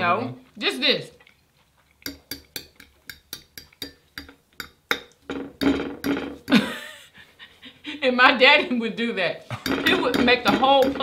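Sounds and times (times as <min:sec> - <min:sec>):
fork tapping on plate: 0:02.1 - 0:06.6.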